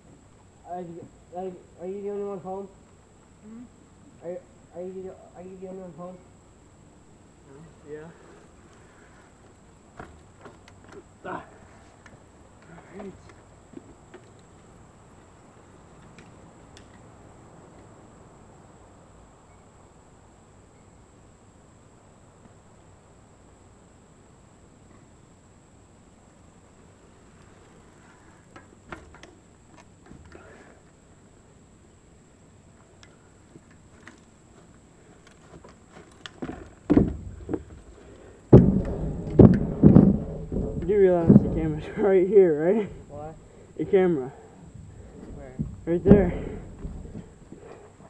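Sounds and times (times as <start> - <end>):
outdoor background hiss: 0.0 - 48.0
bike tyres thudding on wooden boards: 8.1 - 14.7, 27.9 - 30.8, 33.4 - 43.8, 44.6 - 48.0
faint bike clicks: 11.9 - 17.1, 32.8 - 36.5.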